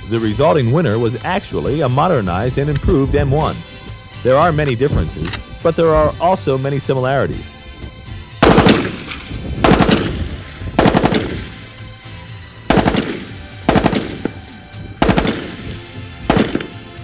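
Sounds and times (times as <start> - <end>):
gunshot echo: 8.4 - 11.8, 12.7 - 17.0
rifle firing bursts: 8.4 - 11.8, 12.7 - 17.0.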